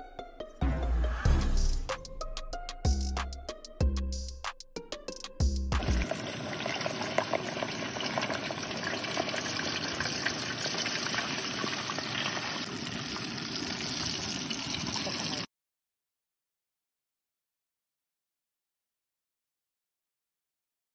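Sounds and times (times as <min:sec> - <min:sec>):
frying oil sizzling and bubbling: 0:05.8 - 0:15.5.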